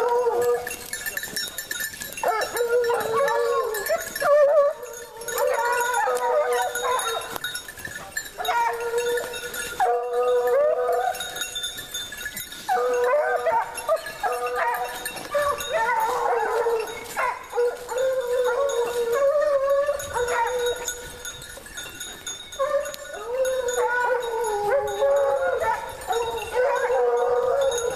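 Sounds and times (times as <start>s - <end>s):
pack of hounds baying: 0.0s - 27.9s.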